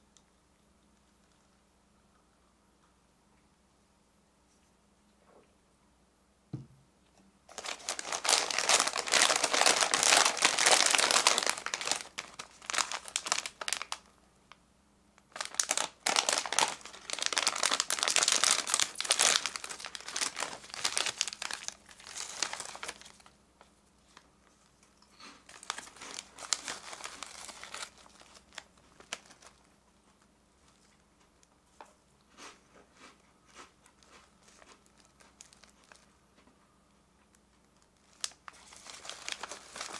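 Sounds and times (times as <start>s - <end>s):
plastic bag crinkling: 7.5s - 14.1s, 15.2s - 23.4s, 25.4s - 29.8s, 34.4s - 36.1s, 37.7s - 39.9s.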